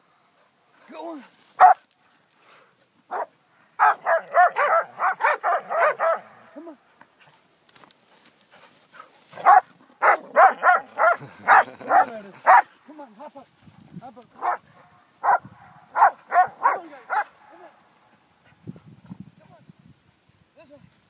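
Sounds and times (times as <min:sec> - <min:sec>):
dog barking high-pitched: 0:01.6 - 0:01.8, 0:03.1 - 0:06.3, 0:09.4 - 0:12.7, 0:14.4 - 0:14.6, 0:15.2 - 0:17.3.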